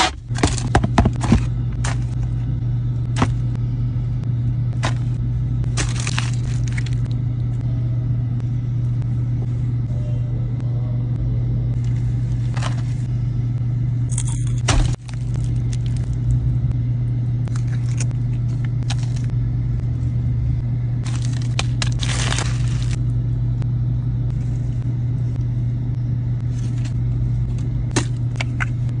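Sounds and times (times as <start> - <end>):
car engine running: 0.0 - 29.0
food wrapping crinkling: 4.8 - 7.1, 21.0 - 23.0.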